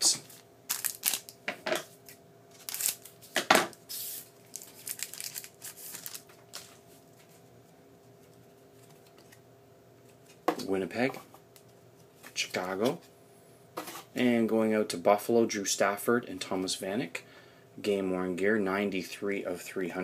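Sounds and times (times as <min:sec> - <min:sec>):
foil wrapper tearing and crinkling: 0:00.7 - 0:01.4, 0:02.6 - 0:03.2, 0:03.9 - 0:06.7
cards being handled: 0:02.0 - 0:07.3.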